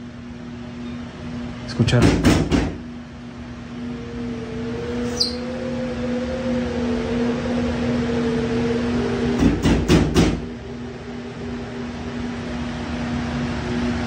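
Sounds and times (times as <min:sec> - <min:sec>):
steady low hum: 0:00.0 - 0:14.0
wavering tone: 0:03.1 - 0:14.0
brief high squeak: 0:05.0 - 0:05.4.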